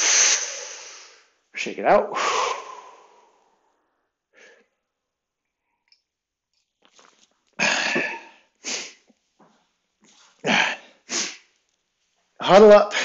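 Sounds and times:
man coughing: 7.6s - 8.3s.

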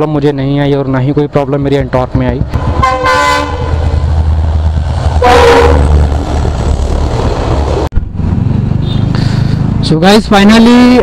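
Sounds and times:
train rumbling past: 1.1s - 10.0s
train horn blast: 2.6s - 3.8s, 5.2s - 6.0s.

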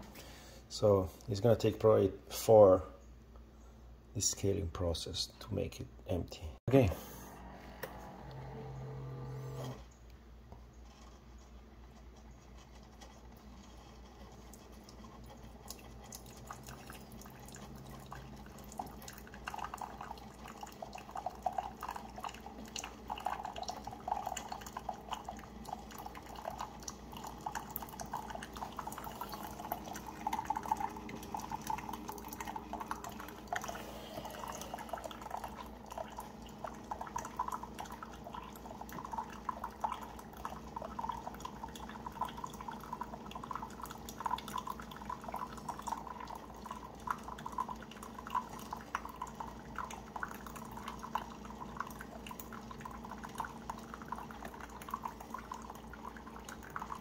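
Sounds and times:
coffee maker humming: 6.8s - 57.0s
water dripping into a mug: 14.3s - 57.0s.

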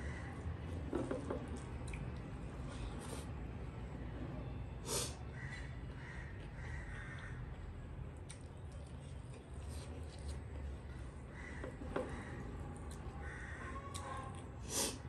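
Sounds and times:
chewing and mouth noises: 1.4s - 3.2s, 8.2s - 10.4s.

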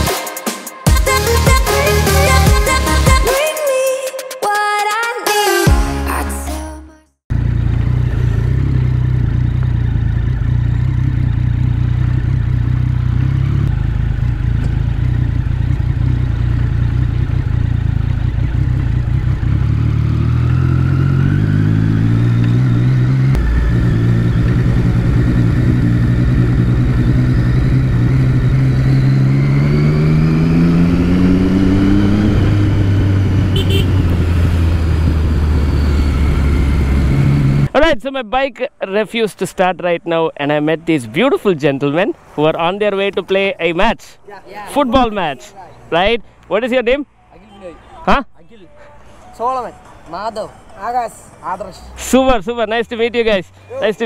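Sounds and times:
motorcycle engine revving: 7.3s - 37.8s.

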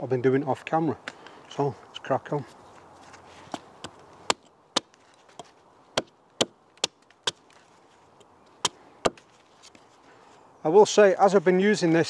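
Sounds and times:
hatchet chopping wood: 3.5s - 7.6s, 8.6s - 9.3s.

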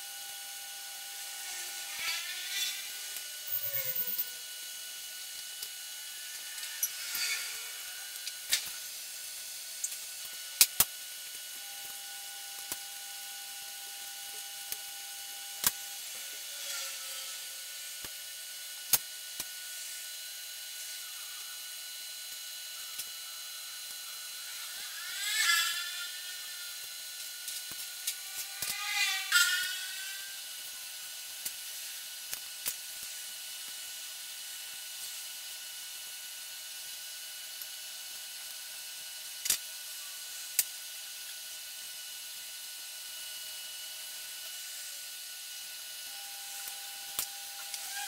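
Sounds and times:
faint high whine: 0.0s - 10.6s, 43.8s - 48.0s
short whirring sounds: 1.4s - 4.7s, 6.1s - 9.0s.

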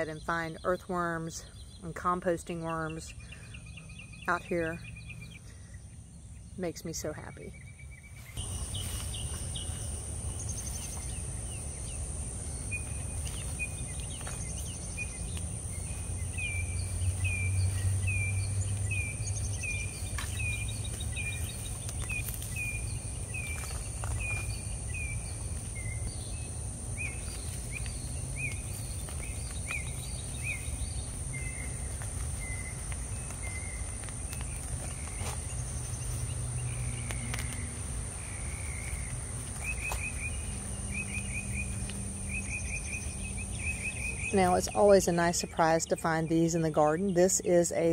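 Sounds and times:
high insect drone: 8.3s - 46.5s.

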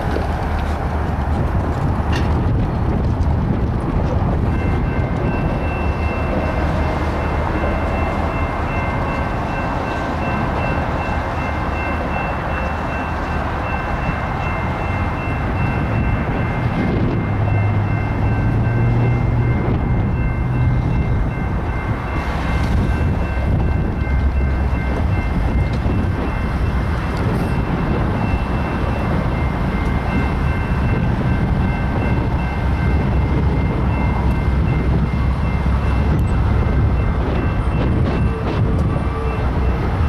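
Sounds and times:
diesel locomotives rumbling: 0.0s - 40.0s
high ringing tone: 4.5s - 39.8s.

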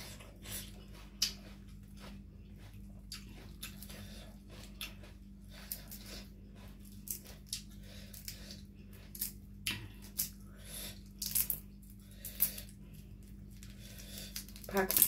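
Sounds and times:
steady low hum: 0.0s - 15.0s
prawn shell crackling: 13.6s - 15.0s.

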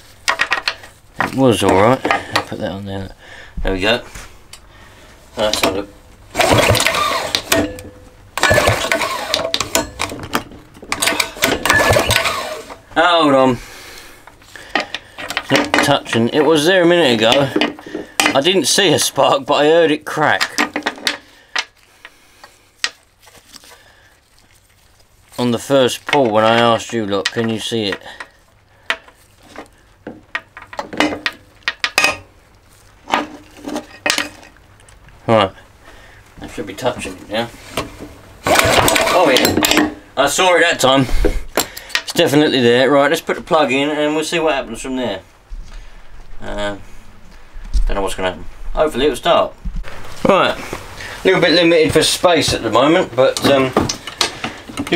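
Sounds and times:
engine recoil starter pulls: 6.3s - 7.8s, 8.4s - 10.2s, 10.9s - 12.8s, 38.4s - 39.9s.

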